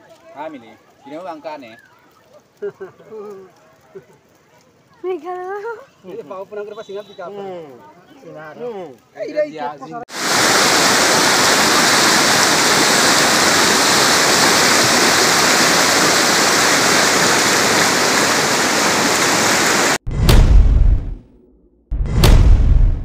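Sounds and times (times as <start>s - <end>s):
floodwater rushing: 10.1s - 20.0s
whoosh and boom effect: 20.0s - 23.0s.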